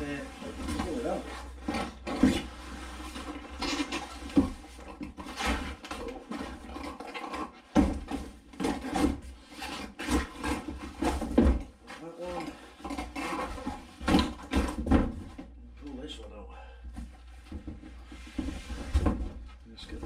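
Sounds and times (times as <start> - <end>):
cardboard and paper rustling: 0.0 - 15.4
knocks and bumps: 10.0 - 15.6, 16.9 - 20.0.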